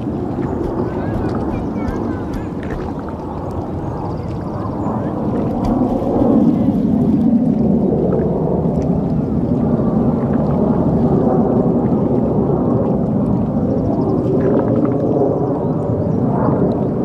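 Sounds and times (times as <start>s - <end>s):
distant jet aircraft rumble: 0.0s - 12.7s.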